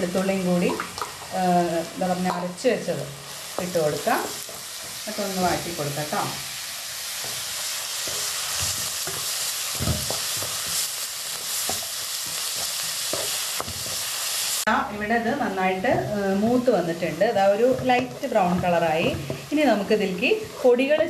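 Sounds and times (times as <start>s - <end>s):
food sizzling in hot oil: 0.0s - 21.0s
wooden spatula scraping a pan: 3.4s - 14.5s, 15.6s - 21.0s.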